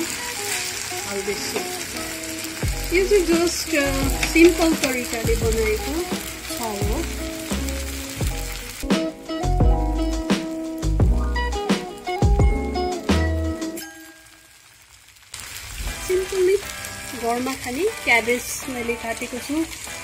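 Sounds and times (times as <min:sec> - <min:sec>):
spatula and fork on iron wok: 0:00.0 - 0:08.8
background music with melody: 0:00.0 - 0:14.5
noodles sizzling in a wok: 0:00.0 - 0:20.0
low pulsing beat: 0:09.5 - 0:10.3, 0:10.9 - 0:11.6.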